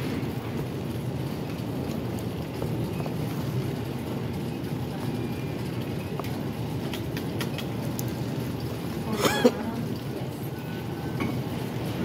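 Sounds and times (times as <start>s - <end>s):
airport hall background noise: 0.0s - 12.0s
faint clicks: 6.1s - 8.2s.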